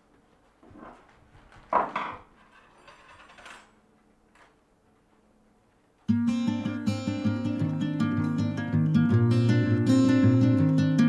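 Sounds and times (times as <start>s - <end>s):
metal tools clinking and knocking: 1.8s - 3.8s.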